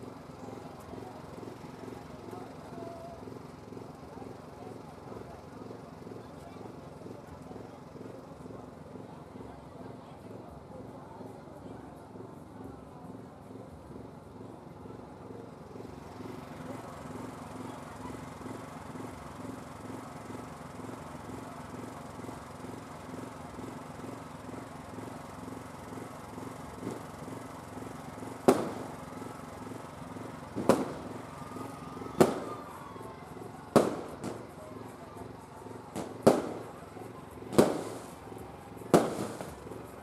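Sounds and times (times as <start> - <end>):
fireworks banging: 15.5 - 40.0.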